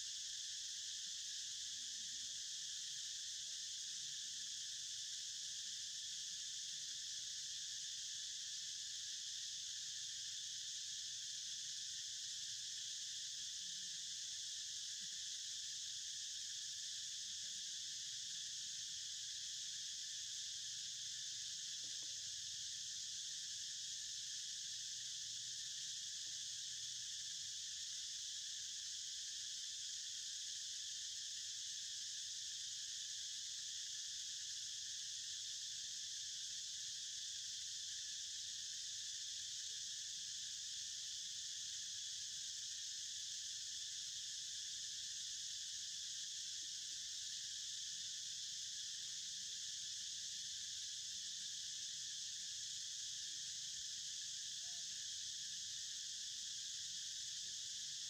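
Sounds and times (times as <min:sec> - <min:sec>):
insects shrilling: 0:54.1 - 0:54.9.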